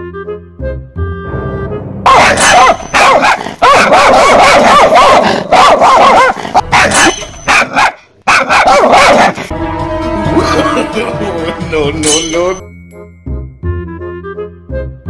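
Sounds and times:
dog barking rapidly: 0:02.1 - 0:09.5.

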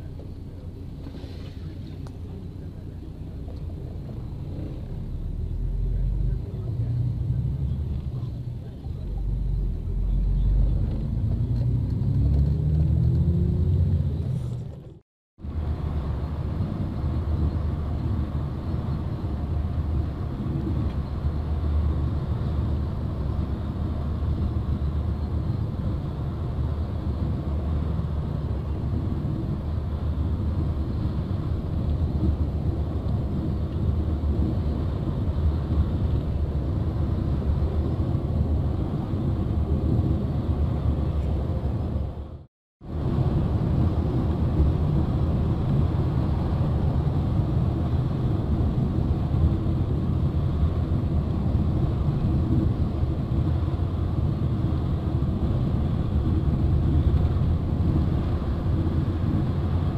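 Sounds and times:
car engine accelerating: 0:00.0 - 0:41.2
tyre road rumble: 0:00.0 - 0:59.9.

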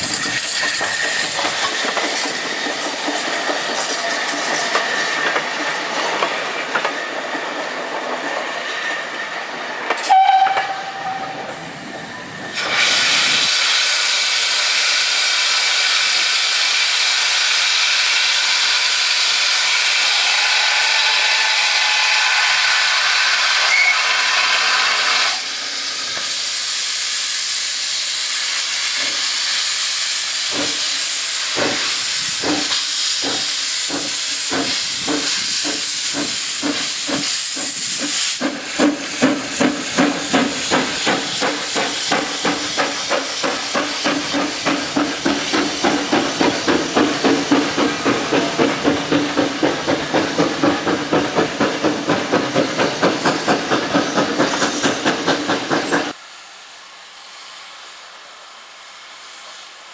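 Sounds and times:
steam hissing: 0:00.0 - 0:59.9
steam exhaust chuffs: 0:26.3 - 0:56.2.

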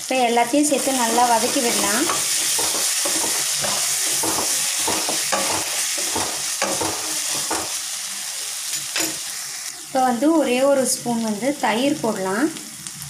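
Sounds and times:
vegetables sizzling in oil: 0:00.0 - 0:13.0
spatula scraping pan: 0:00.7 - 0:07.9.

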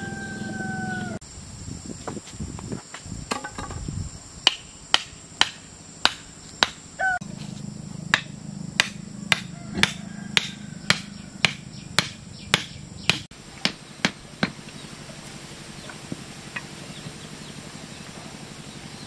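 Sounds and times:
steady low hum: 0:03.9 - 0:19.0
hammer striking stakes: 0:04.4 - 0:06.8, 0:08.1 - 0:14.8.

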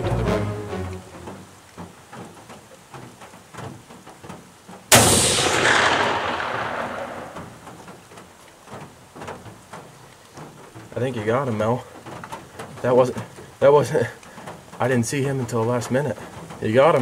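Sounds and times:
rifle shot with echo: 0:04.9 - 0:07.9.

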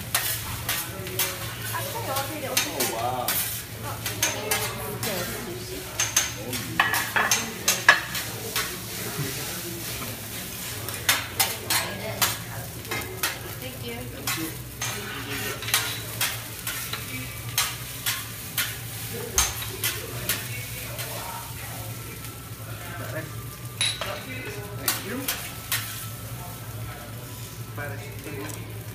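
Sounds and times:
metal spatulas scraping griddle: 0:00.0 - 0:10.0, 0:14.2 - 0:21.2
rice sizzling: 0:00.0 - 0:28.9.

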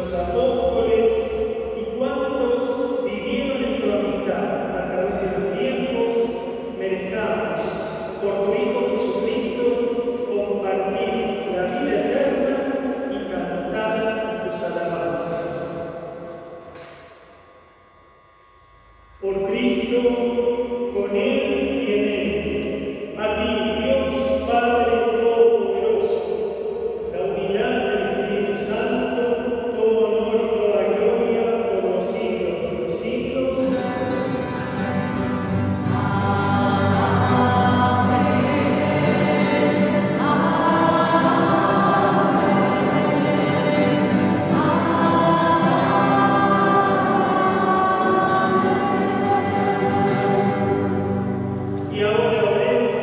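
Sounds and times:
group singing a chant: 0:33.6 - 0:51.7.

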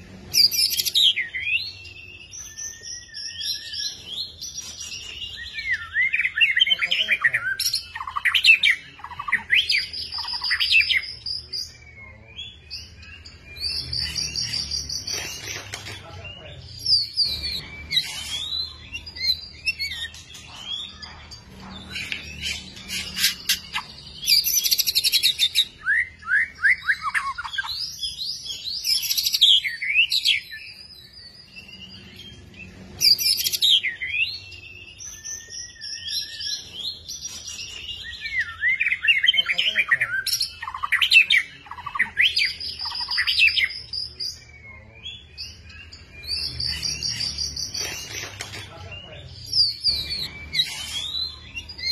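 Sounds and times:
bird singing whistles and trills: 0:00.3 - 0:51.9.

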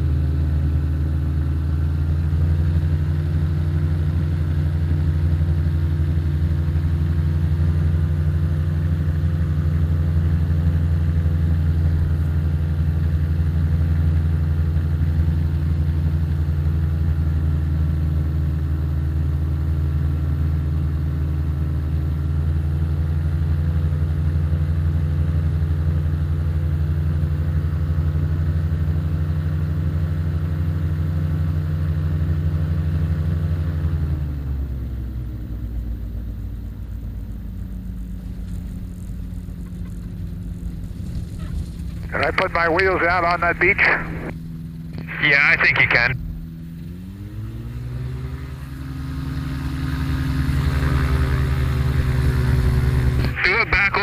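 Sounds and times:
light aircraft engine droning: 0:00.0 - 0:54.0.

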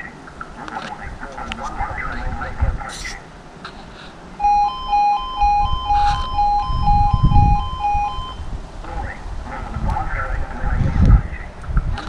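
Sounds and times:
level crossing alarm warbling: 0:04.4 - 0:08.6
low rumble: 0:04.4 - 0:08.7.

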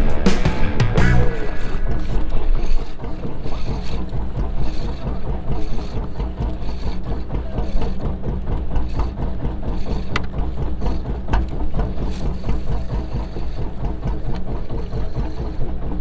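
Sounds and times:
boat engine idling: 0:00.0 - 0:16.0
sea noise: 0:00.0 - 0:16.0
wind: 0:00.0 - 0:16.0.

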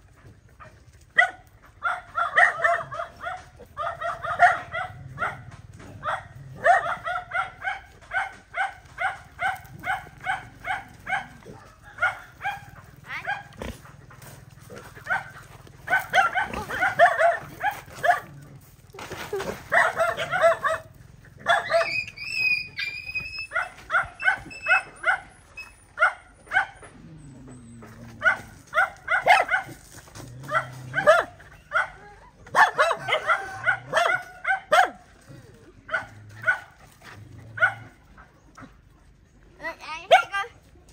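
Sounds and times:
dogs barking: 0:00.0 - 0:39.0, 0:39.9 - 0:40.5
dog whining: 0:21.5 - 0:26.0.

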